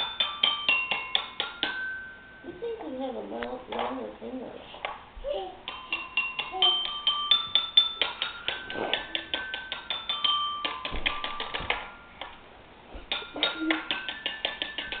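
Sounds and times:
bell-like tinkling tune: 0:05.7 - 0:10.9.

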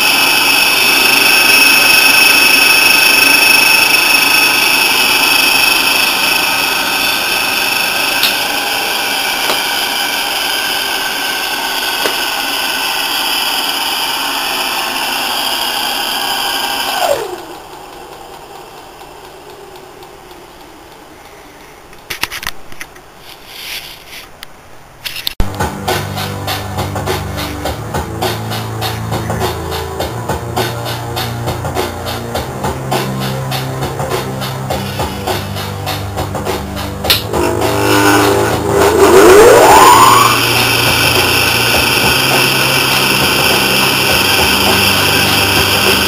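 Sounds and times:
electric motor whining: 0:00.0 - 0:18.3, 0:37.1 - 0:46.0
motor coasting down: 0:00.0 - 0:21.1, 0:25.4 - 0:46.0.

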